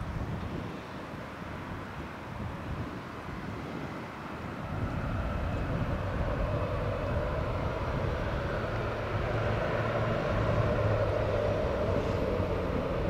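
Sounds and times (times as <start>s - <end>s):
jet engines taxiing: 0.0s - 13.0s.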